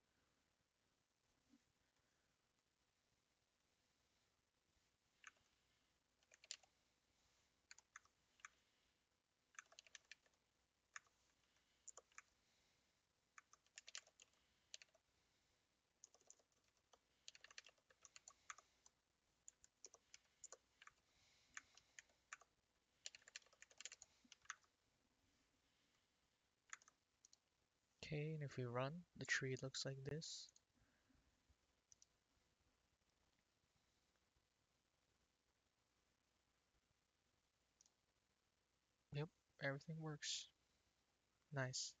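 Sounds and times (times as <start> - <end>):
typing on computer keyboard: 6.2 - 6.7, 7.7 - 8.6, 9.5 - 10.4, 11.9 - 12.3, 13.4 - 15.0, 16.0 - 24.7, 26.7 - 27.4.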